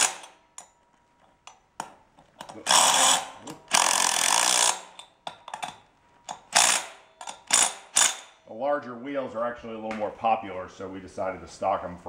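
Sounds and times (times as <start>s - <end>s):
handling clicks and knocks: 0.5s - 2.7s, 5.0s - 6.5s.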